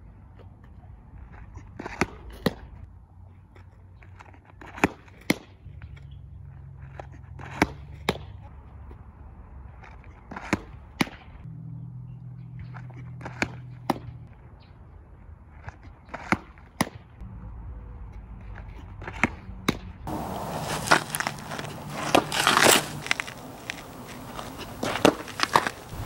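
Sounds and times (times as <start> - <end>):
ball smacking into mitt: 19.7 - 26.0.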